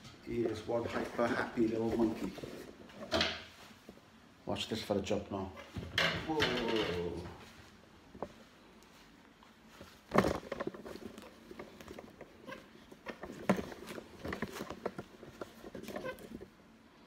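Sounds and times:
clothing rustle: 0.2 - 4.2, 6.6 - 16.8.

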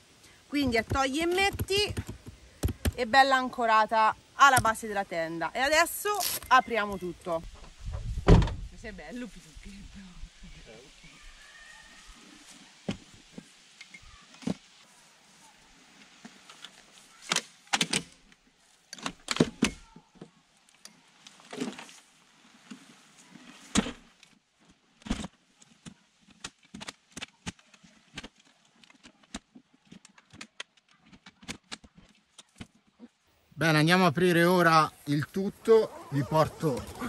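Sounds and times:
handling knocks: 0.6 - 3.0.

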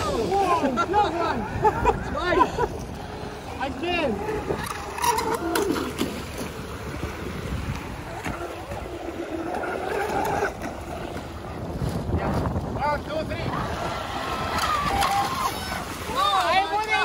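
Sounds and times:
lapping waves: 0.0 - 17.0
wind: 0.0 - 17.0.

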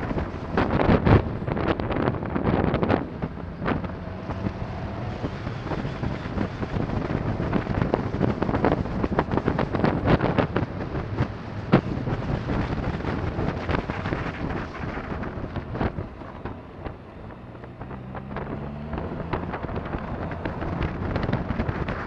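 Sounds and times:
motorcycle engine running: 0.0 - 22.0
wind buffeting microphone: 0.0 - 22.0.

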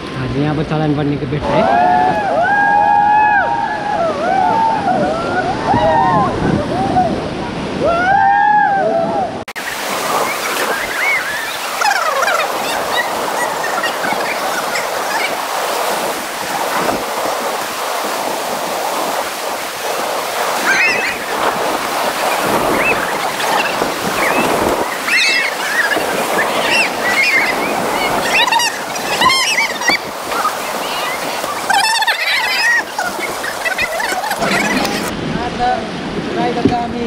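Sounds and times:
people whooping and yelling: 1.4 - 7.2, 7.8 - 9.4, 22.7 - 35.1
rapids rushing: 9.5 - 37.0.

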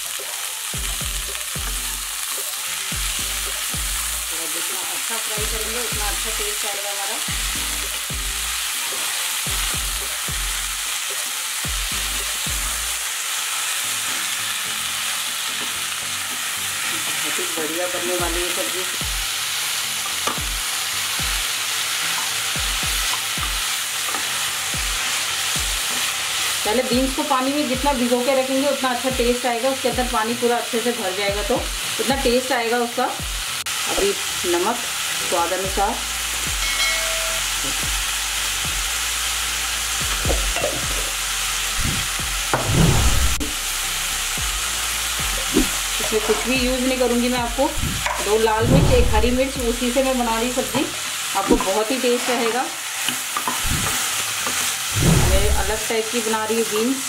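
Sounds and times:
beans sizzling in oil: 0.0 - 57.0
low thud: 41.8 - 43.4, 48.6 - 49.4.

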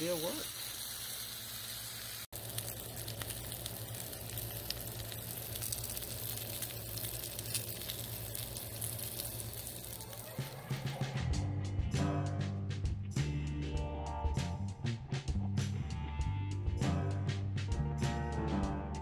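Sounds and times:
vegetables sizzling on a griddle: 0.0 - 11.0
crackling pops: 2.2 - 10.6.

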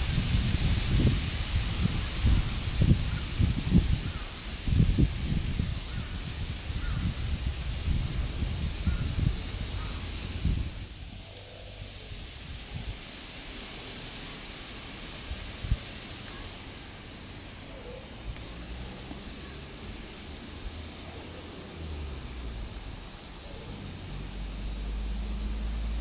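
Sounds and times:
steady high hiss: 0.0 - 26.0.

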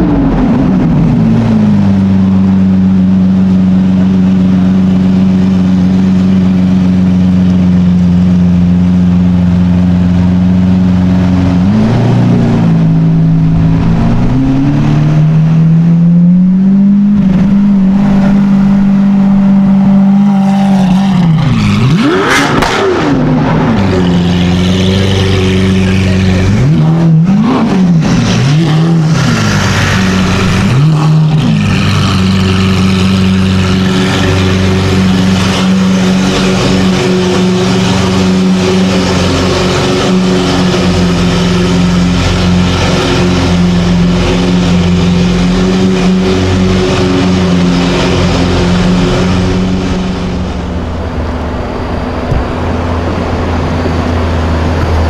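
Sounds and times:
car engine revving: 0.0 - 55.0.

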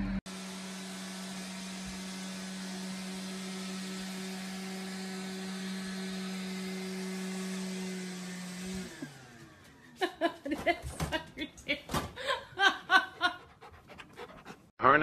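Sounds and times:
robot vacuum cleaner running: 0.0 - 10.0.

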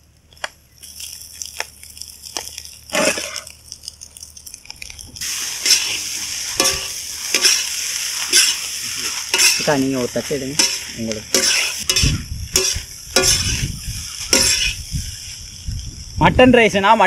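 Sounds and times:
rice and vegetables sizzling: 0.0 - 17.0
metal ladle scraping a pan: 5.3 - 9.8, 10.6 - 14.8.

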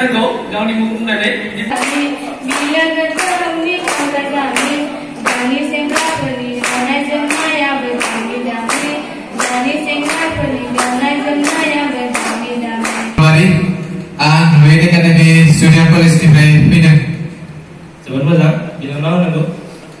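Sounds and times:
rhythmic hand clapping: 1.7 - 13.2.

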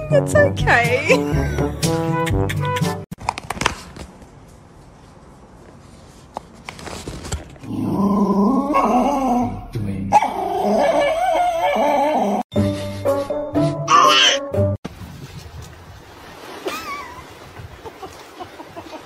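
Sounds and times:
background music: 0.0 - 3.0, 12.5 - 14.8
dog howling: 10.2 - 12.4.

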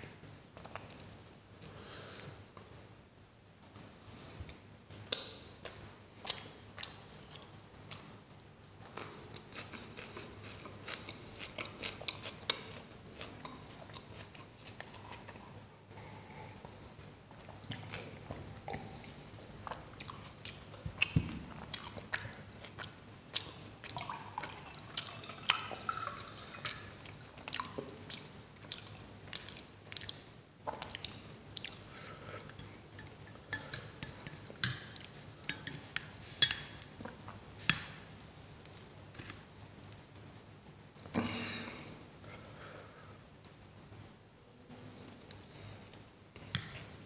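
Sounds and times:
chewing with wet mouth clicks: 5.1 - 15.5, 17.4 - 37.9.

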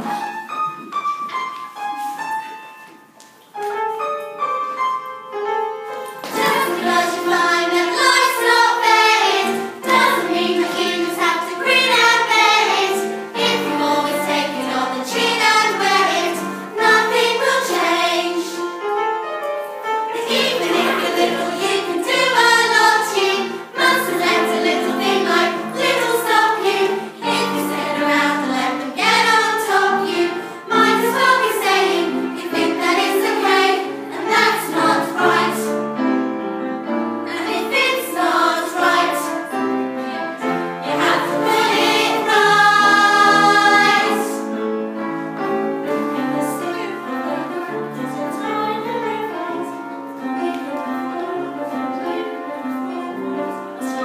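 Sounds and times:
women singing in chorus: 6.3 - 18.6, 20.2 - 35.7, 37.3 - 39.3, 40.1 - 44.4.

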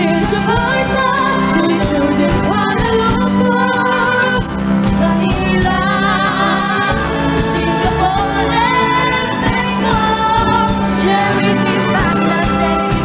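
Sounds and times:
instrumental accompaniment: 0.0 - 13.0
young voices singing: 5.0 - 13.0.

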